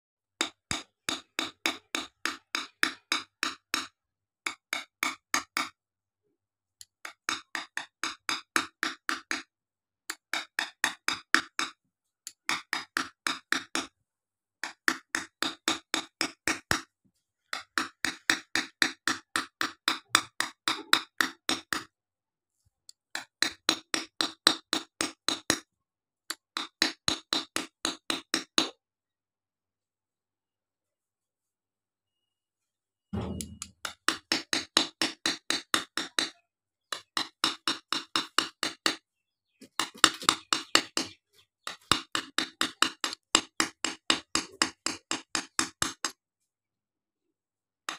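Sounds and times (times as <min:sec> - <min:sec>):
hand tool tapping on glass: 0:33.2 - 0:39.0.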